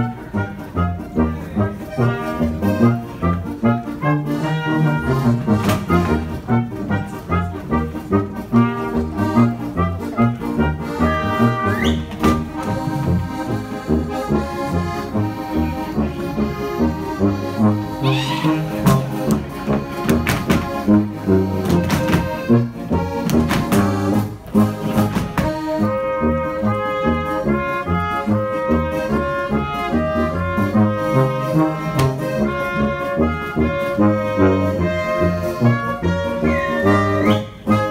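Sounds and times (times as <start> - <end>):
accordion: 0.0 - 37.9
brass band folk dance music: 0.0 - 37.9
dancers' hand slaps: 20.1 - 20.7, 23.2 - 23.9.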